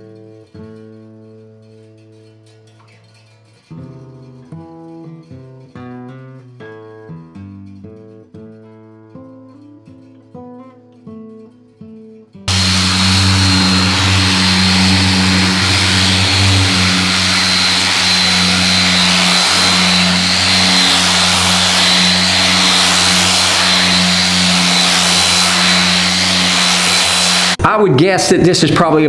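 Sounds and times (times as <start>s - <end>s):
power sander whining: 12.5s - 27.6s.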